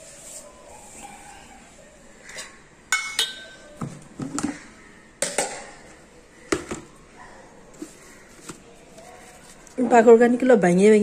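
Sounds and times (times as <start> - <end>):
kitchenware clinking and knocking: 2.3 - 4.6, 5.2 - 5.8.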